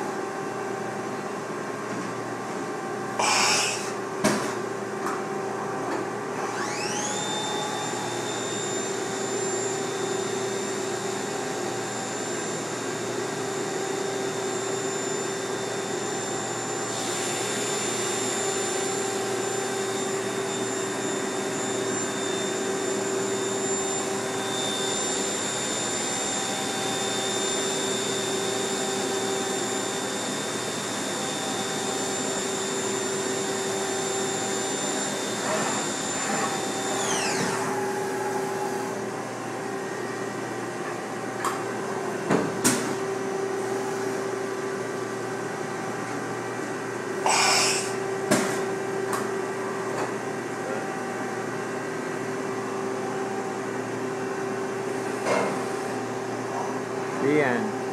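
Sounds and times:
machine motors and fans humming: 0.0s - 57.9s
spindle whine: 5.9s - 40.3s.

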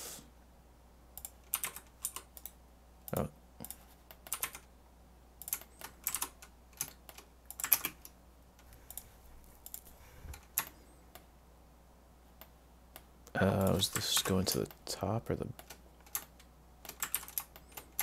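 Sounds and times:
computer keyboard keys tapping: 1.2s - 4.7s, 5.4s - 8.2s, 15.6s - 18.0s.

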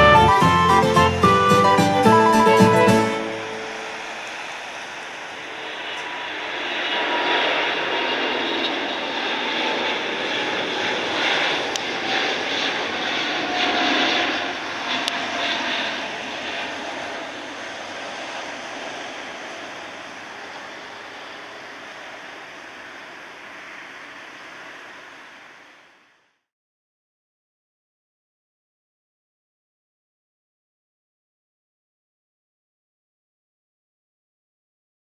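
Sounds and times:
jet engine roar: 0.0s - 26.2s.

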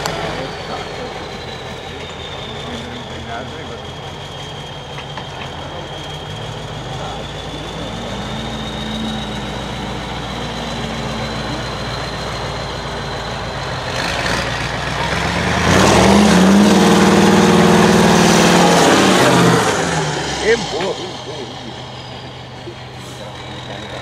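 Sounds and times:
diesel truck engine under load: 0.0s - 24.0s.

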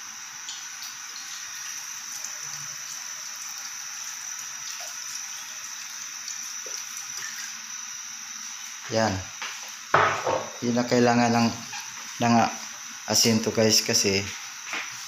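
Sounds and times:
even hiss: 0.0s - 15.0s
liquid trickling into a pot: 0.4s - 8.4s.

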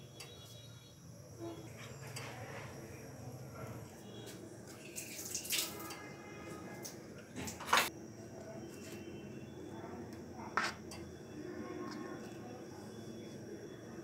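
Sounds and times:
spoon scraping plastic bowls: 10.6s - 11.0s.

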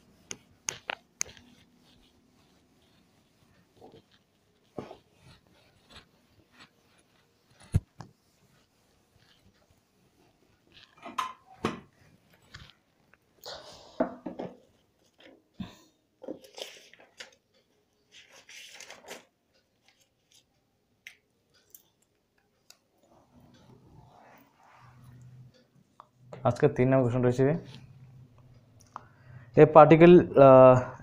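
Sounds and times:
marker scratching on whiteboard: 0.1s - 9.8s.

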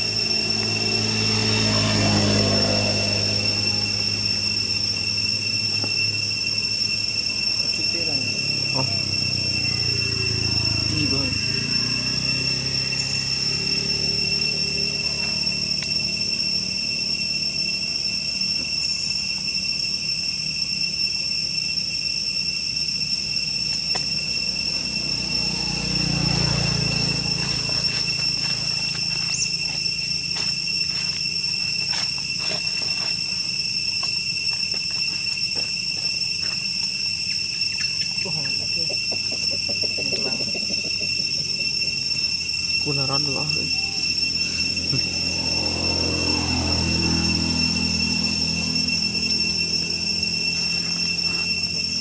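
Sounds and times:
shrill insect chorus: 0.0s - 52.0s.

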